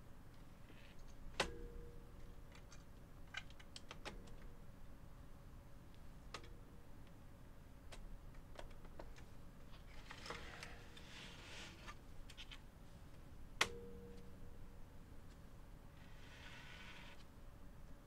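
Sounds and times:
small clicks and scraping of parts: 0:07.9 - 0:12.6.

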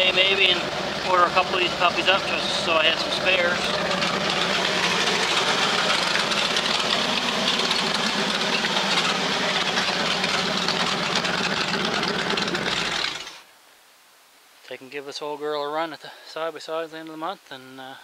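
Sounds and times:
engine idling: 0:00.0 - 0:13.4.

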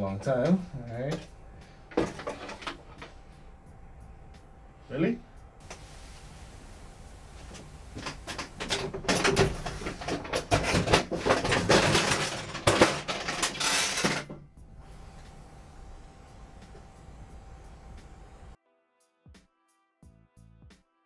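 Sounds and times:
ironing board rustling and clattering: 0:01.9 - 0:03.2, 0:05.7 - 0:18.6.

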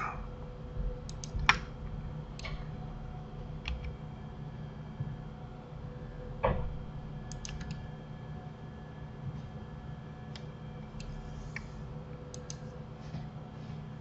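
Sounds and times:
low steady hum: 0:00.0 - 0:14.0
computer keyboard and mouse clicks: 0:01.1 - 0:01.7, 0:07.3 - 0:07.8, 0:12.3 - 0:12.6.

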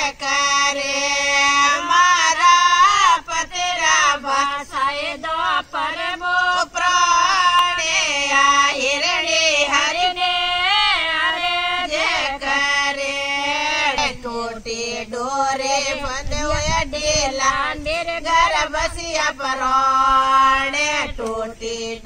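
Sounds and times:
women singing unaccompanied: 0:00.0 - 0:22.0.

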